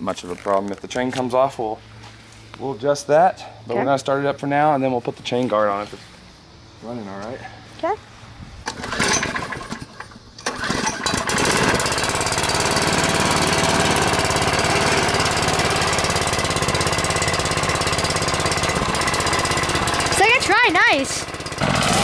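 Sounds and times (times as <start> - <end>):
small engine cranking and running: 8.7 - 22.0.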